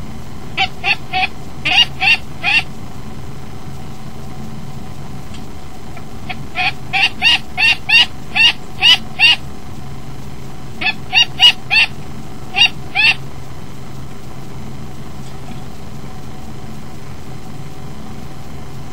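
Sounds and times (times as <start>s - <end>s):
bird calling sharp notes: 0.5s - 2.8s, 5.8s - 9.5s, 10.7s - 13.2s.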